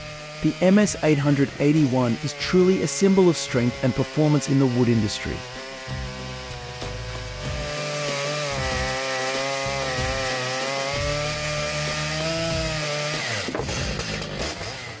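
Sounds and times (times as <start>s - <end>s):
chainsaw cutting log: 0.0s - 15.0s.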